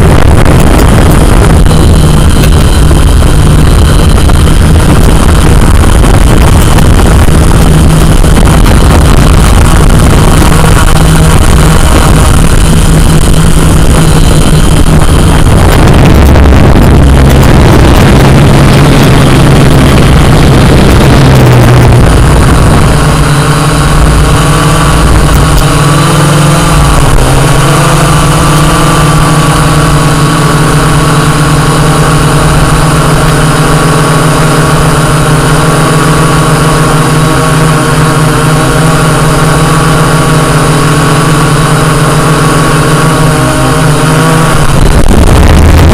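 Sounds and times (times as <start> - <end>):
drone propellers humming: 0.0 - 45.9.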